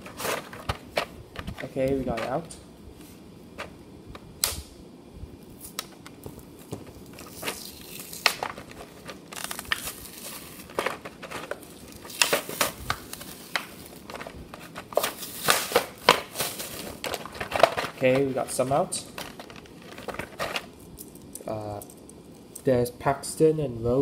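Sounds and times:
plastic packaging crinkling and clicking: 0.0 - 2.6, 5.6 - 22.2.

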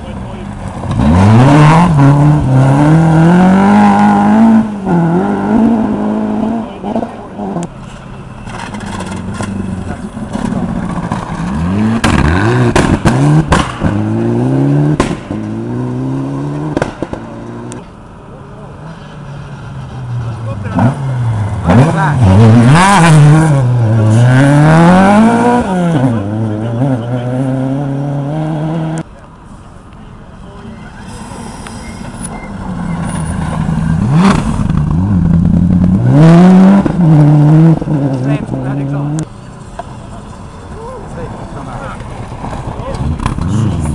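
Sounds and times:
rally car engine passing: 0.4 - 7.7, 9.2 - 17.8, 18.7 - 29.1.

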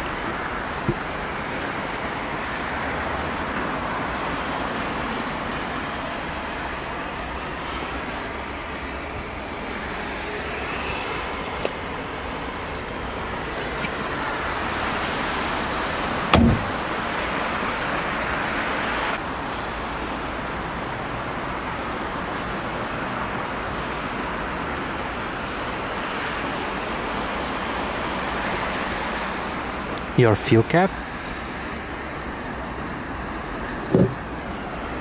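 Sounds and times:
car rear door thump: 0.8 - 1.1, 16.3 - 16.8, 33.9 - 34.2.

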